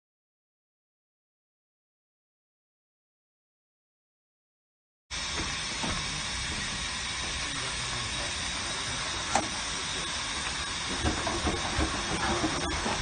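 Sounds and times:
steam hissing: 5.1 - 13.0.

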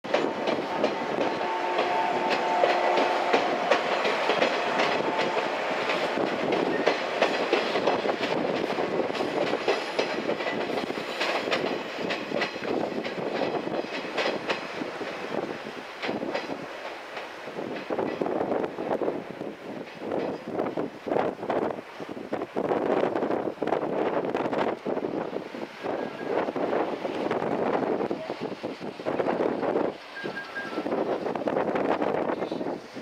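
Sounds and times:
train wheels clicking on rail joints: 0.1 - 33.0.

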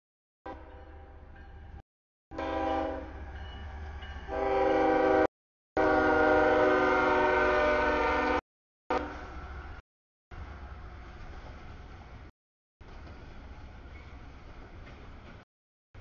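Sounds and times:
locomotive air horn: 0.5 - 0.9, 2.3 - 3.2, 4.3 - 9.3
low rumble of locomotive: 2.4 - 15.4.

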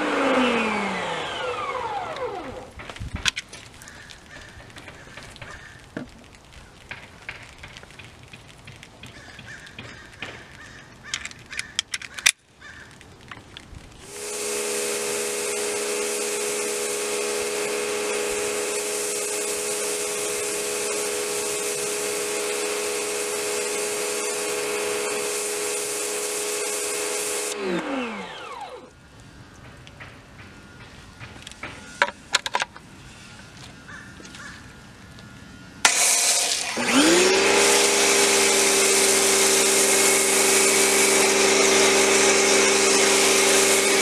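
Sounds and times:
pressure washer motor humming: 0.0 - 2.8, 14.0 - 29.5, 35.8 - 44.0
high-pressure spray hissing: 14.0 - 28.9, 35.8 - 44.0.

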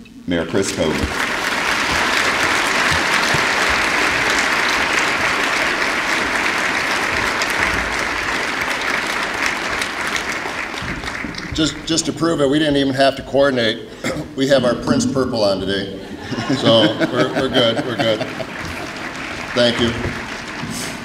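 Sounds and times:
audience applauding: 0.6 - 12.7, 16.3 - 21.0.

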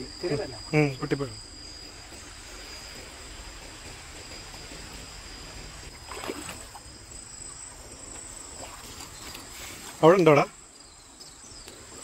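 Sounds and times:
crickets chirping: 0.0 - 12.0
stream trickling over stones: 5.9 - 7.7
splash in water: 6.0 - 6.8.

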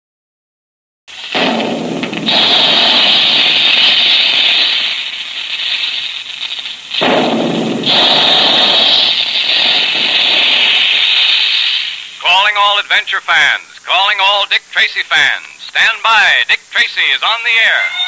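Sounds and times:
dense crackling rattle: 1.1 - 12.8.

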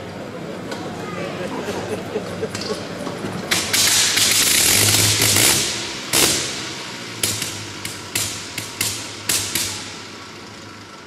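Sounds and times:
rotary engine firing bangs: 3.5 - 10.7.

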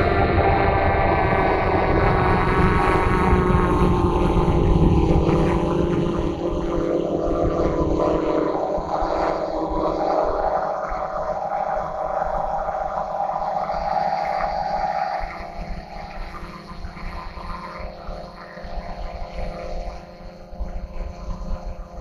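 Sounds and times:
small aircraft propellers whining: 0.0 - 22.0
wind buffeting microphone: 0.0 - 22.0.

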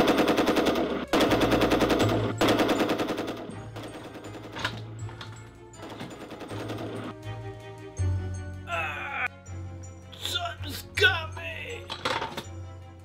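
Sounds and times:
machine-gun fire: 0.0 - 4.6
background music: 0.0 - 13.0.

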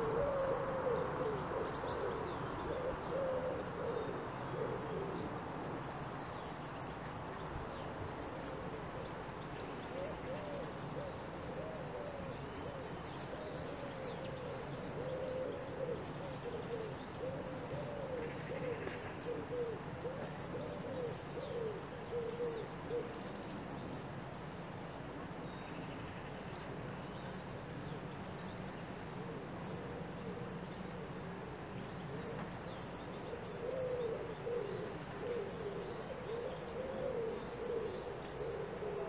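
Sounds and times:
dove cooing: 0.0 - 5.7, 9.9 - 23.2, 29.1 - 39.0
low background noise: 0.0 - 39.0.

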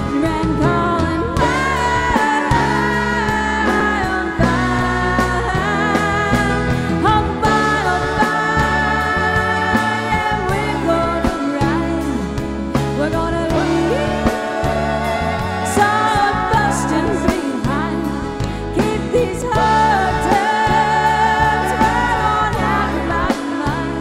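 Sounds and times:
country band playing: 0.0 - 24.0
pedal steel guitar sliding: 13.3 - 18.6
drum beat: 13.5 - 18.0.

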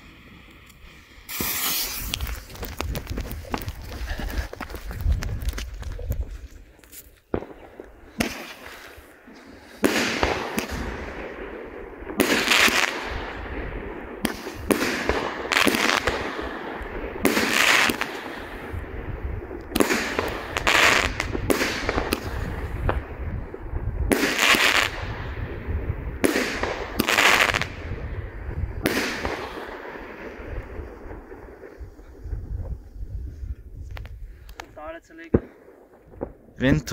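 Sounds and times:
firework battery bangs: 1.3 - 3.7.

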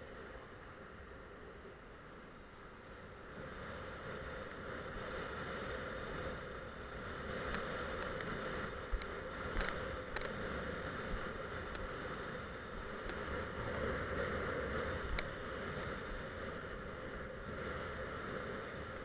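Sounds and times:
wind and water rushing: 0.0 - 19.0
sharp ticks on camera: 7.4 - 10.4, 11.6 - 12.0, 13.0 - 13.3, 15.1 - 16.0.

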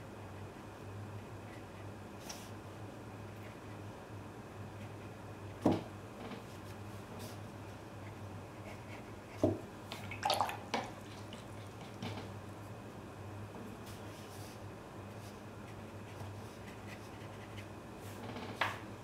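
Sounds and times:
low steady hum: 0.0 - 19.0
brush clinking and splashing in jar: 10.0 - 11.5.

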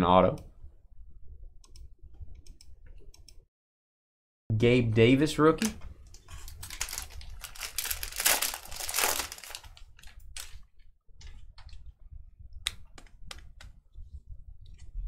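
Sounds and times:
foil wrapper crinkling and tearing: 6.3 - 10.6
cards clicking and rustling: 6.4 - 10.6.

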